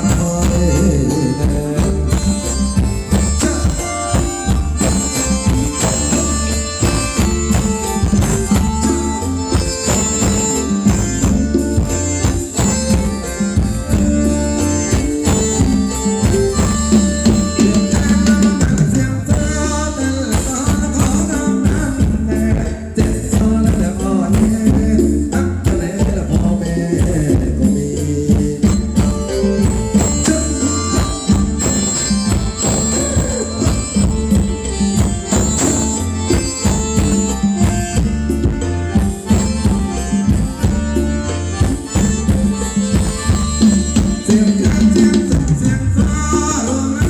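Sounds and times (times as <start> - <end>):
person singing: 0.0 - 6.2, 14.2 - 32.0, 32.6 - 34.8, 43.0 - 47.0
tambourine-like percussion: 1.6 - 47.0
drum beat: 25.6 - 47.0.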